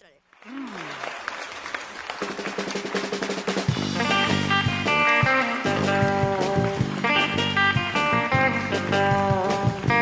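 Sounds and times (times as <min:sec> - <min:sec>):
drum kit: 0:02.2 - 0:10.0
electric bass: 0:03.7 - 0:10.0
electric guitar riff: 0:03.7 - 0:10.0.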